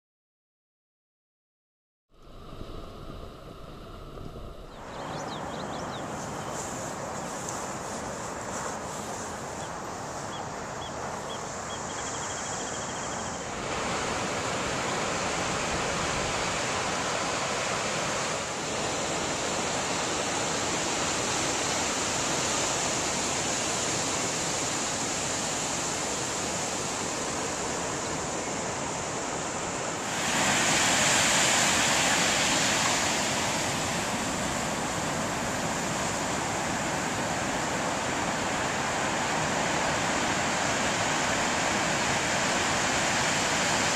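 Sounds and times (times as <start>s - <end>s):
waves breaking: 2.2s - 43.9s.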